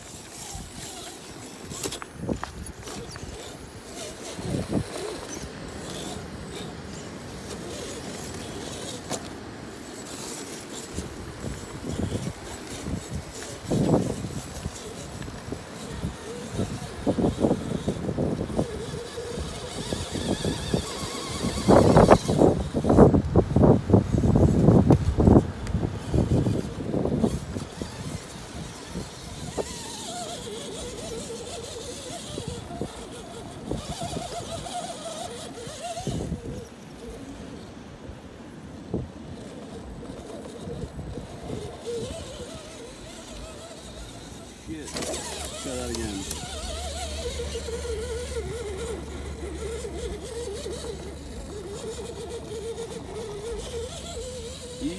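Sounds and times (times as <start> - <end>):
electric motor whining: 0.0 - 54.9
wind rumbling on microphone: 10.9 - 37.2.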